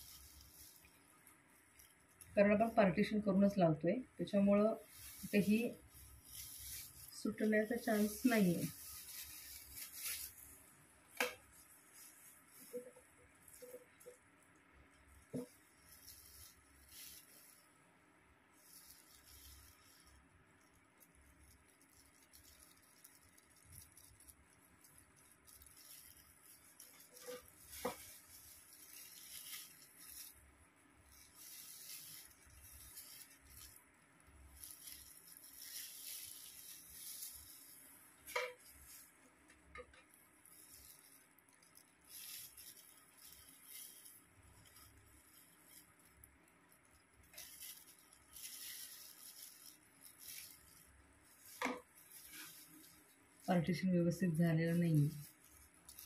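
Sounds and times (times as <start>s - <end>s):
brush working through hair: 0.0s - 1.0s, 15.3s - 17.7s, 25.2s - 30.4s, 31.2s - 33.8s, 47.2s - 53.5s
plastic gloves rustling: 0.0s - 56.0s.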